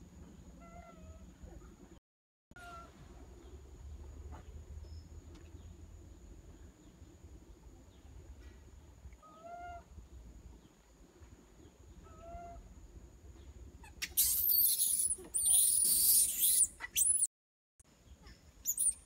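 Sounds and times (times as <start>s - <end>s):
infant monkey calling: 13.8s - 17.3s, 18.2s - 19.0s
infant monkey screaming: 13.8s - 17.3s, 18.6s - 19.0s.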